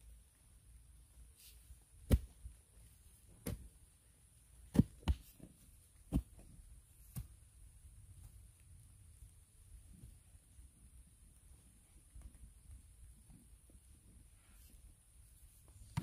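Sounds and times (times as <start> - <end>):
pole thudding into soil: 2.0 - 2.5, 4.7 - 5.3.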